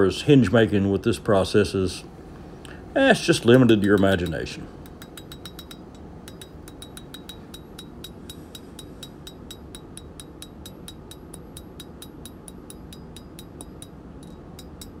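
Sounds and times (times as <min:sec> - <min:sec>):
hammer ringing on anvil: 0:03.5 - 0:15.0.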